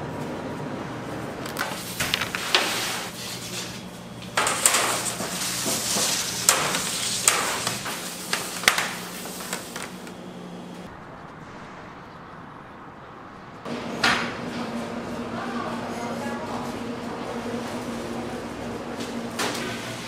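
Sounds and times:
steady machine hum: 0.0s - 20.0s.

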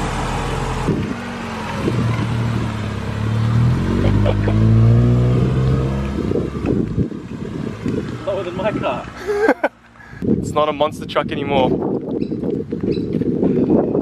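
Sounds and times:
car engine pulling away: 0.0s - 10.1s.

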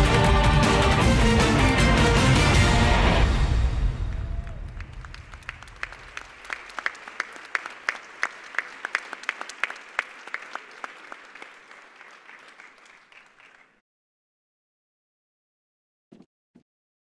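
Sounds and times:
audience applauding: 0.0s - 2.9s, 4.0s - 13.8s.

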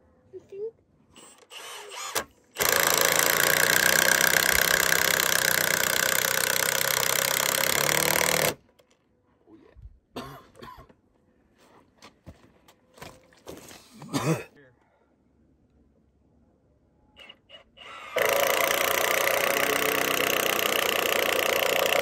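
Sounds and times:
power driver driving screw into wood: 1.2s - 8.6s, 17.2s - 22.0s.

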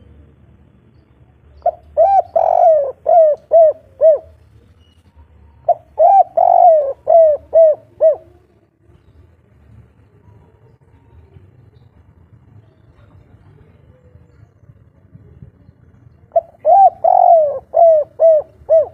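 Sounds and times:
dove cooing: 1.6s - 4.4s, 5.6s - 8.7s, 16.3s - 18.9s.

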